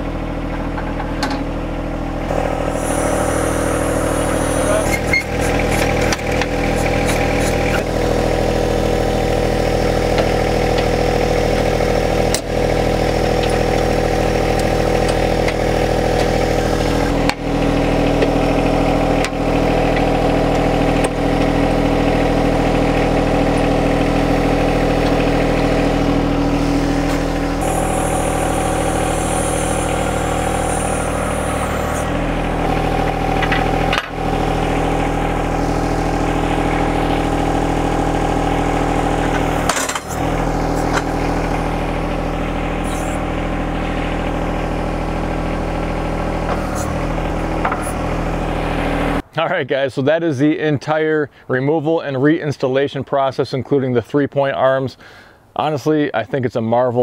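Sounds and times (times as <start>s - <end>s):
diesel engine running: 0.0s - 49.3s
high hiss: 2.6s - 4.9s.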